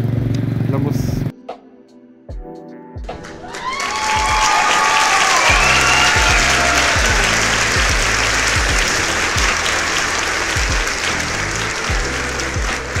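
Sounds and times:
background music with drum beat: 1.5s - 13.0s
applause: 3.1s - 13.0s.

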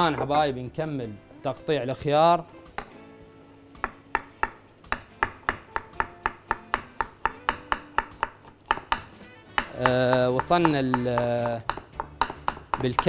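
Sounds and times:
knife chopping cucumber: 4.9s - 13.0s.

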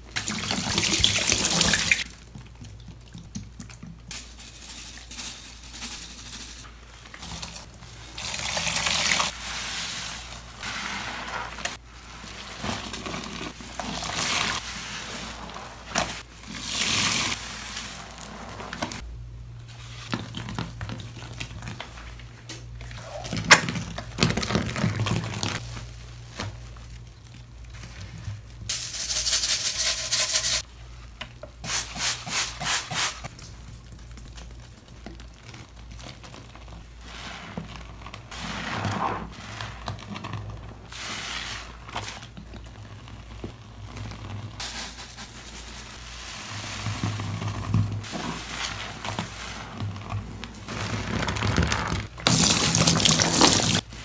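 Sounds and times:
wet sponges squeezed: 6.7s - 19.0s, 31.6s - 54.0s.

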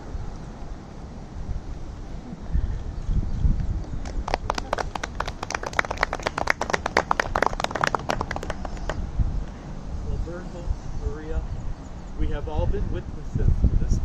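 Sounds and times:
people clapping: 3.8s - 9.0s.

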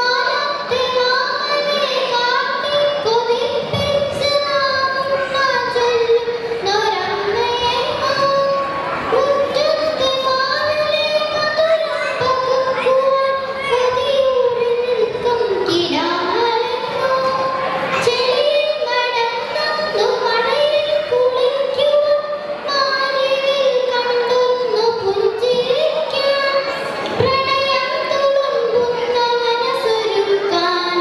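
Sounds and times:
girl singing into a microphone: 0.0s - 31.0s.

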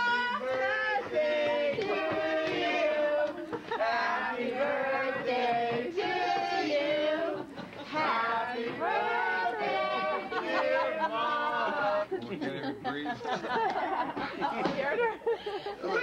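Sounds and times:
crowd calling out sing-song: 0.0s - 12.2s.

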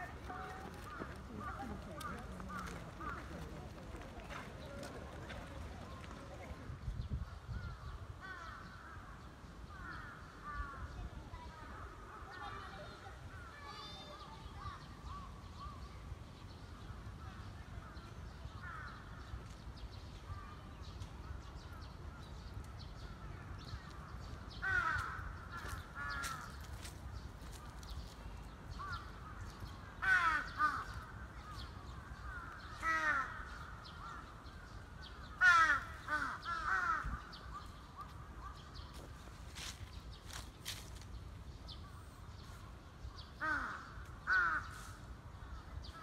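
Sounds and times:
crows cawing: 24.6s - 26.9s, 28.8s - 31.2s, 32.1s - 34.4s, 35.3s - 37.3s, 43.4s - 44.9s.

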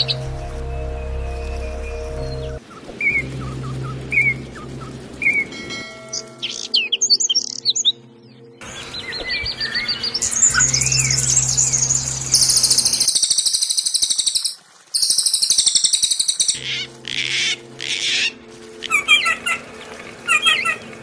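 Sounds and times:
low steady hum: 0.0s - 6.5s
buzzy bird trill: 0.0s - 7.9s, 9.0s - 21.0s
whistled bird phrases: 9.0s - 16.6s
harsh bird chattering: 12.3s - 19.6s.

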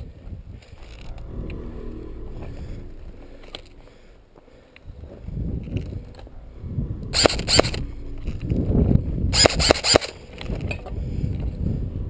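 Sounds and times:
airsoft rifle shots: 7.2s - 7.8s, 9.4s - 10.2s.

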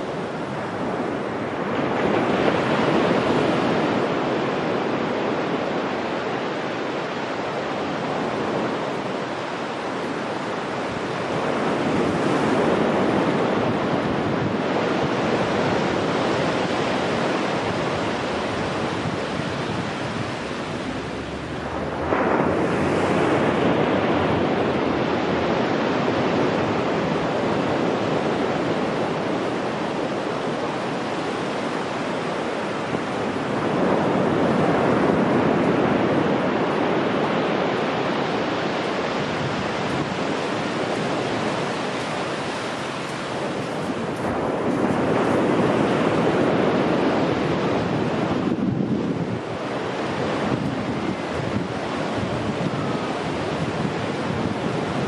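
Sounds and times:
ocean surf breaking on beach: 0.0s - 55.0s.

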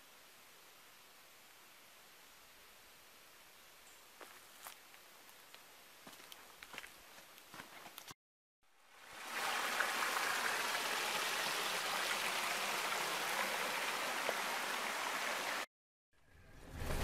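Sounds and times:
stream running over stones: 8.8s - 15.7s.

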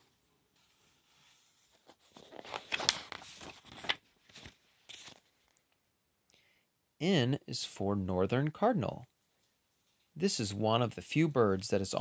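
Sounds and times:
book page rustling: 0.0s - 5.6s.

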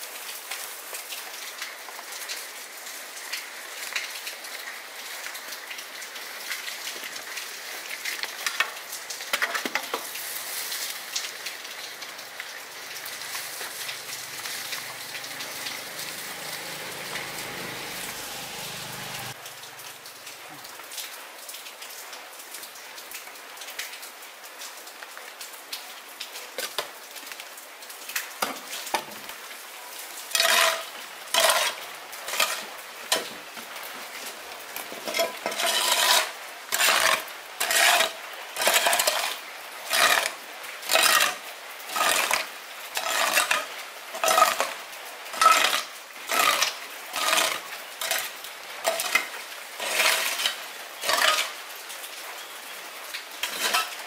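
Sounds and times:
metal utensil scraping metal pot: 13.0s - 19.4s, 30.4s - 33.3s, 35.0s - 40.3s, 43.0s - 43.6s, 44.2s - 44.8s, 45.4s - 51.6s, 53.4s - 54.0s.

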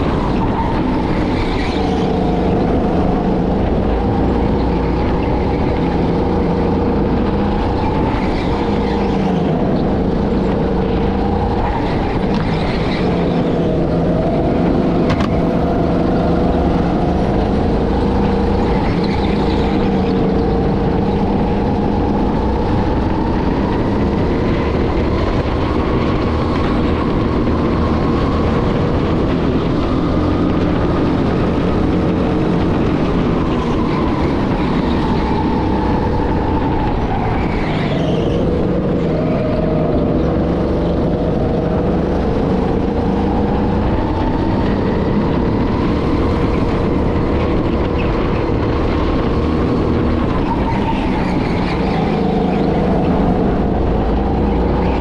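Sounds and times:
go-kart motor: 0.0s - 55.0s.

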